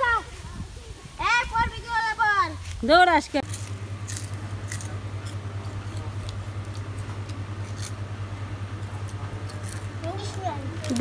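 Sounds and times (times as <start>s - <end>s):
motor humming: 3.3s - 11.0s.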